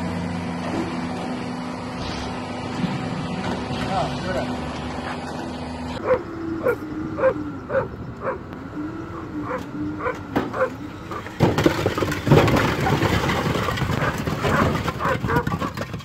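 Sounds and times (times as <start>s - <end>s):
engine hum: 0.0s - 16.0s
dog barking: 6.0s - 8.4s, 9.4s - 10.8s, 14.0s - 15.4s
concrete blocks clattering off truck: 10.3s - 16.0s.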